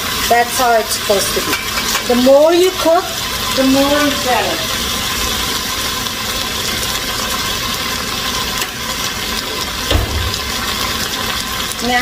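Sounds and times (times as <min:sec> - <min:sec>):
curry paste sizzling and bubbling: 0:00.0 - 0:12.0
low bump: 0:09.9 - 0:11.1.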